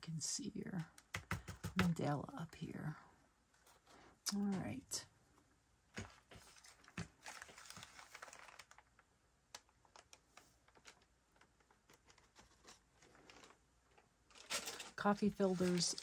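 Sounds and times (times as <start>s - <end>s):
paper rustling: 5.9s - 16.0s.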